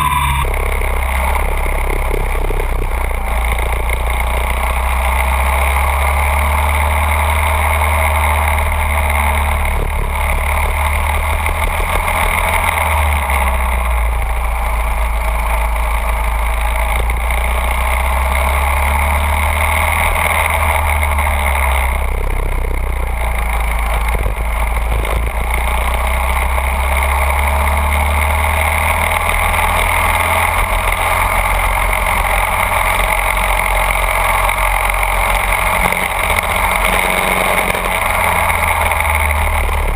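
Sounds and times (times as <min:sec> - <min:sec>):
go-kart engine droning: 0:00.0 - 0:39.9.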